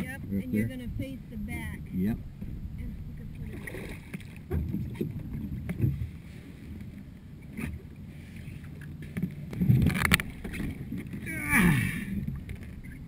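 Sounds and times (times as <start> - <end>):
water sloshing around kayak hull: 0.0 - 13.0
knocks and scrapes on kayak deck: 4.2 - 6.8.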